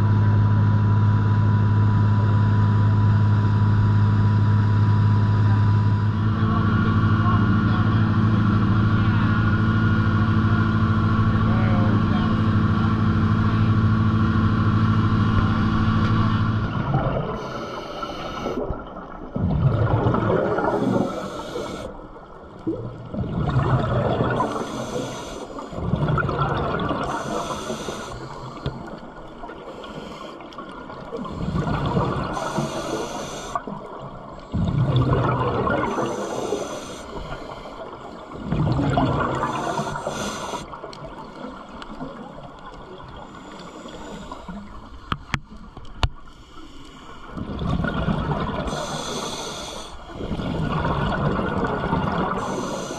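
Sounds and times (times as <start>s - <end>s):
exhaled bubbles rushing underwater: 0.0s - 46.0s, 47.1s - 52.9s
regulator inhale hiss: 17.4s - 18.7s, 20.6s - 22.0s, 24.4s - 25.8s, 27.0s - 33.9s, 35.8s - 38.4s, 39.3s - 40.8s, 43.0s - 45.6s, 46.2s - 47.4s, 48.6s - 50.3s, 52.2s - 52.9s.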